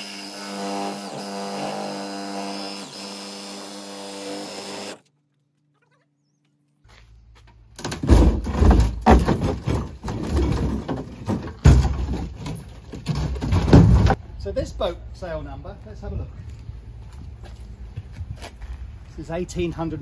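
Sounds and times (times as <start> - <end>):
reciprocating saw cutting wood: 0.0 - 5.1.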